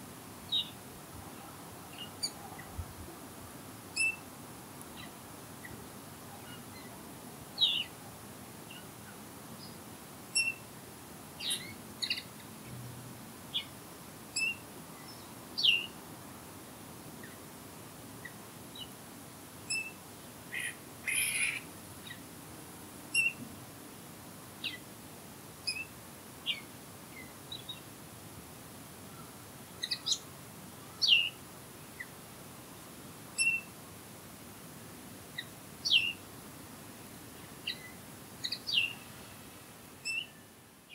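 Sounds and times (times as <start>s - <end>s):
faint outdoor hiss: 0.0s - 40.9s
songbirds chirping and whistling: 1.9s - 2.7s, 4.0s - 4.2s, 7.6s - 8.0s, 10.4s - 10.6s, 11.4s - 12.5s, 14.4s - 16.0s, 19.7s - 22.2s, 23.1s - 23.4s, 25.7s - 25.9s, 29.8s - 30.2s, 30.9s - 31.4s, 33.4s - 33.7s, 35.4s - 36.2s, 37.6s - 39.2s, 40.0s - 40.9s.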